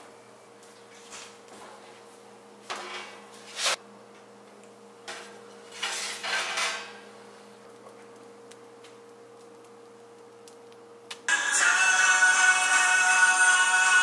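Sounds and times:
pizza stones scraping on rack: 0:02.8 - 0:03.8, 0:05.6 - 0:07.0.

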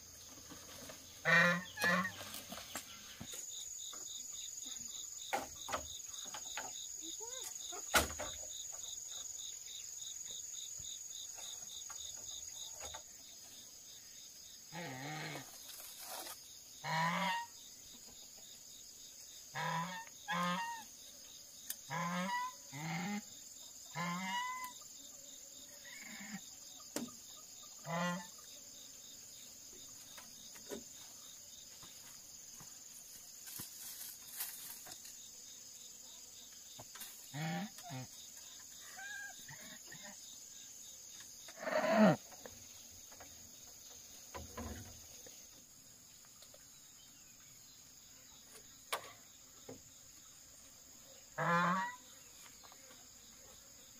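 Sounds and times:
high insect drone: 0:00.0 - 0:53.9
geese honking: 0:01.2 - 0:02.2, 0:16.8 - 0:17.5, 0:51.4 - 0:52.0.

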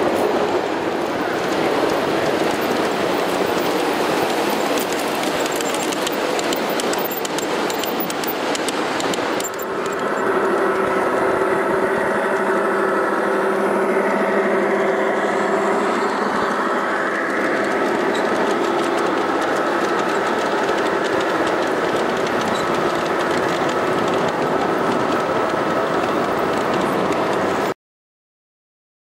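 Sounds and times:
wheels clicking over rail joints: 0:00.0 - 0:11.5, 0:17.2 - 0:27.7.

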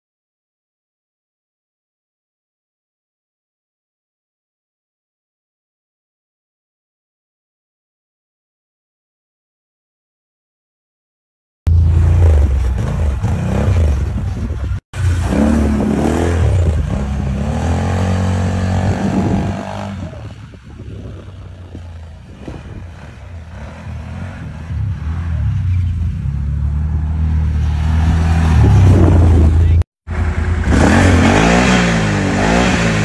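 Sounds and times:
off-road vehicle engines revving: 0:11.7 - 0:33.0.

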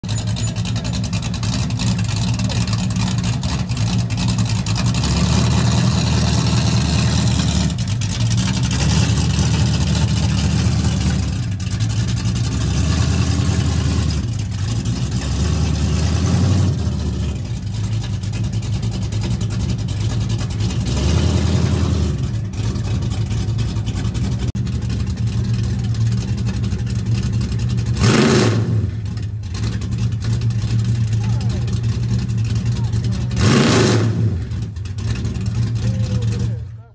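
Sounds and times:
car engine idling and revving: 0:00.0 - 0:36.9.

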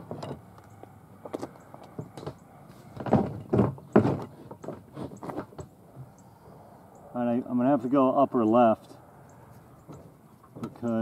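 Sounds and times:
irregular knocks and thuds: 0:00.0 - 0:00.6, 0:01.2 - 0:05.7, 0:09.8 - 0:11.0.

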